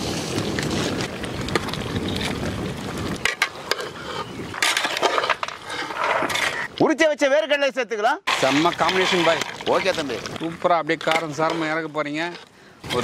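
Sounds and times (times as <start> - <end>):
wind rumbling on microphone: 0.0 - 6.8, 8.4 - 13.0.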